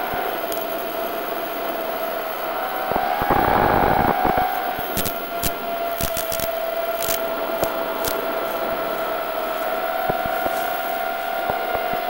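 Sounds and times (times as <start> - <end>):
drone motors whining: 0.0 - 12.0
sharp crackles and clicks: 0.2 - 9.2.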